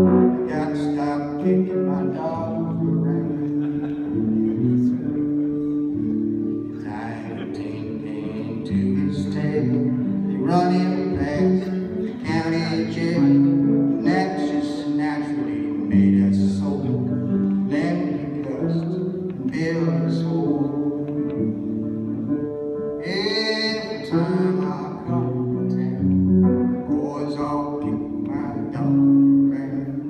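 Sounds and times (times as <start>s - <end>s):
acoustic guitar folk music: 0.0s - 30.0s.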